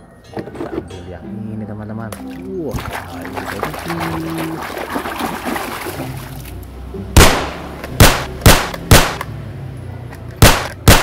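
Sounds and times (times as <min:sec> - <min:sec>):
water sloshing in a tub: 0:02.2 - 0:06.7
toy pistol gunshot effects: 0:07.2 - 0:09.2, 0:10.4 - 0:11.0.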